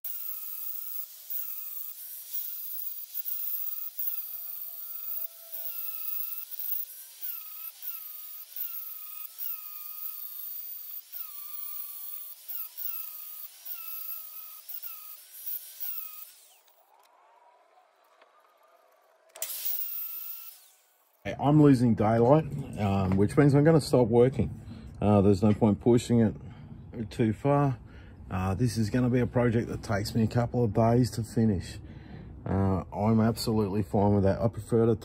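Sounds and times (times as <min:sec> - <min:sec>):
angle grinder grinding steel: 0:00.0 - 0:17.1, 0:19.3 - 0:23.0.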